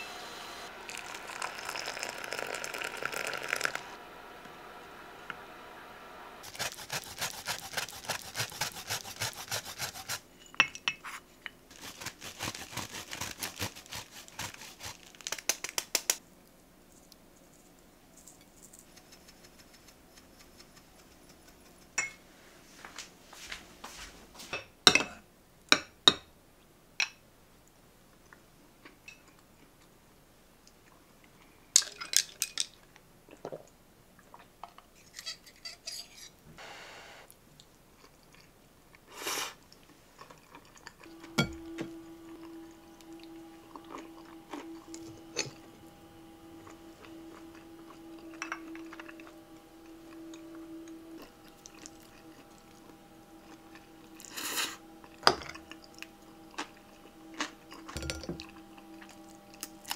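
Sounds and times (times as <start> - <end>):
tableware taps and clinks: 24.5 - 25.2, 57.9 - 58.4.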